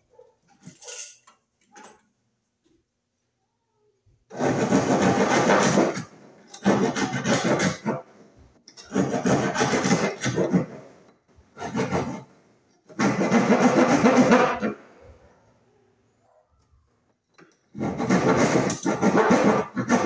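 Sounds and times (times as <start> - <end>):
hand saw cutting wood: 4.3 - 8.1, 8.7 - 11.0, 11.6 - 14.8, 17.7 - 20.0.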